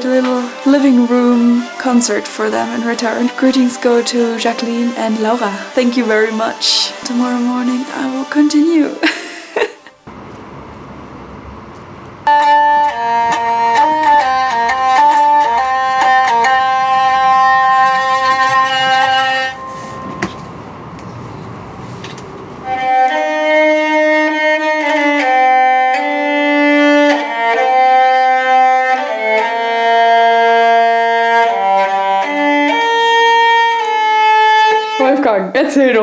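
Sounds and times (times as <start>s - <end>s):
hurdy-gurdy playing: 0.0s - 10.1s, 12.2s - 21.0s, 22.0s - 35.4s
quiet rushing noise: 9.8s - 12.3s, 18.2s - 23.1s.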